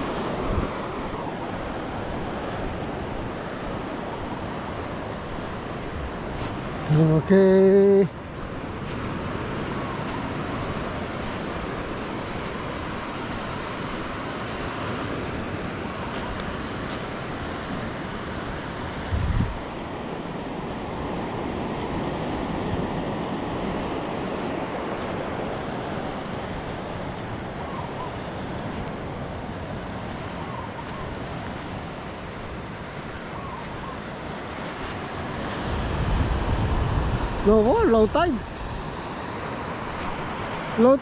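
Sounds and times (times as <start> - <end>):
sea surf: 0.0 - 41.0
wind on microphone: 8.6 - 41.0.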